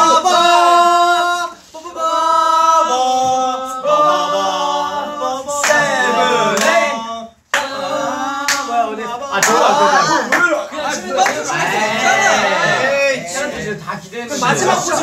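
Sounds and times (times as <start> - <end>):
men singing a cappella: 0.0 - 15.0.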